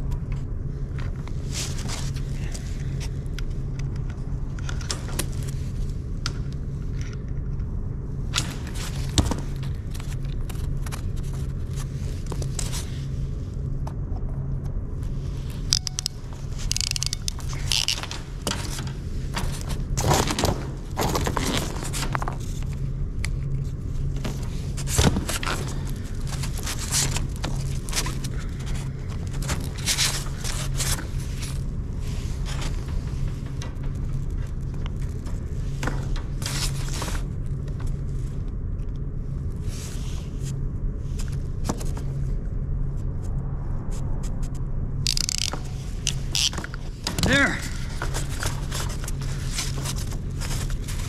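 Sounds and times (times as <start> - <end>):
low machine hum: 0.0 - 51.0
tool clicks and scrapes: 15.6 - 22.4, 45.1 - 47.3.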